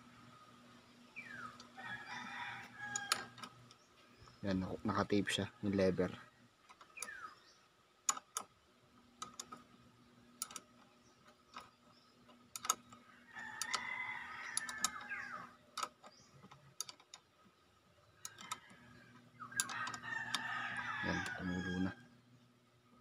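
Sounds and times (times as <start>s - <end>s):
rooster crowing: 1.7s - 3.5s, 13.0s - 15.6s, 18.4s - 22.1s
metallic wrench clicks: 2.9s - 3.5s, 8.1s - 8.5s, 10.4s - 10.7s, 12.5s - 13.0s, 14.4s - 15.2s, 18.2s - 18.7s, 19.5s - 20.5s.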